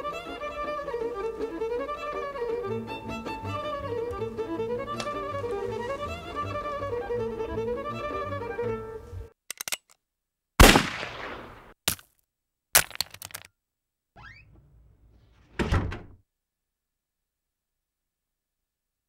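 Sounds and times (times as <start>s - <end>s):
gunshot bang: 10.6s - 11.7s.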